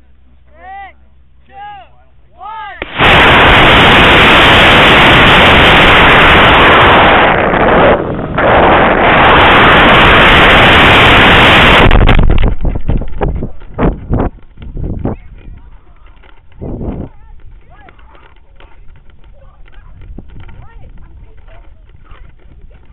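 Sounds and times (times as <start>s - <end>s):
rocket motor exhaust roar: 2.8s - 15.4s
air rushing past microphone: 2.8s - 15.8s.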